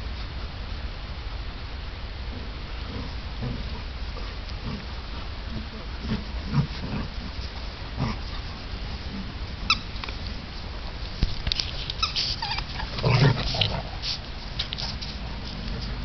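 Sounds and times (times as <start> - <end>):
deep dog vocal burst: 2.3 - 11.0, 12.0 - 16.0
dogs yipping and whining: 11.8 - 14.0.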